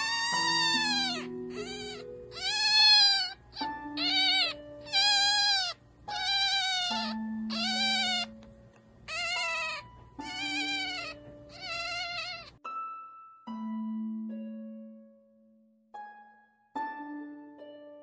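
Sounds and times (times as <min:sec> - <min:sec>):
fox kit squealing: 0:00.0 - 0:08.4, 0:09.1 - 0:12.6
music with plucked notes: 0:12.6 - 0:18.0.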